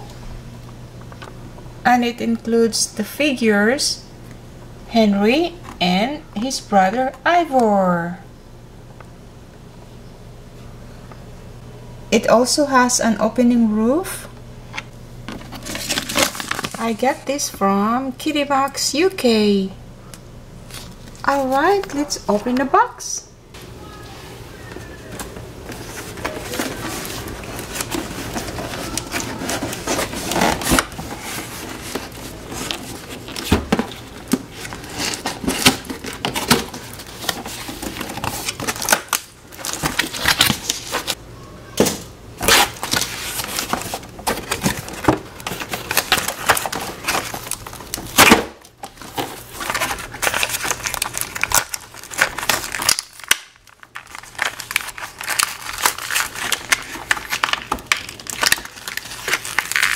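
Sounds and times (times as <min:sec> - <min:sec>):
plastic packaging crinkling: 0:15.3 - 0:17.2, 0:20.6 - 0:22.0, 0:24.7 - 0:41.2, 0:42.4 - 0:59.9
cardboard scraping and tearing: 0:15.5 - 0:16.8, 0:25.7 - 0:41.2, 0:42.4 - 0:48.4, 0:49.0 - 0:53.3.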